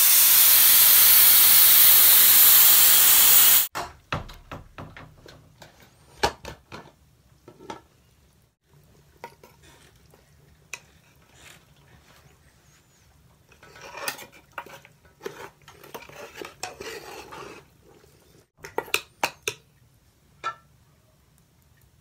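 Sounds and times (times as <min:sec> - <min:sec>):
pressure cooker steam hiss: 0:00.0 - 0:03.7.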